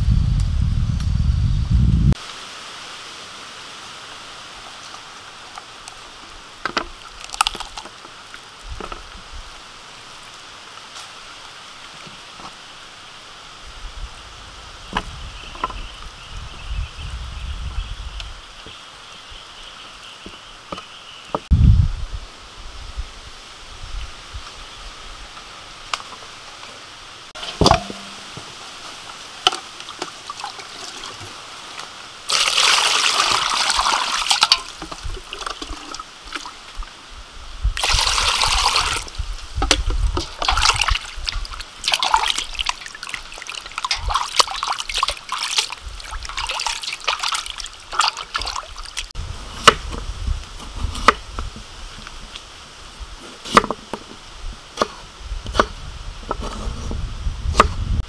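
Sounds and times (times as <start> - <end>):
sharp knocks: 27.4 - 28.5
water sloshing and splashing: 29.4 - 36.8, 37.8 - 49.1
water running into bowl: 32.3 - 36.5, 37.8 - 39.2, 40.1 - 49.1.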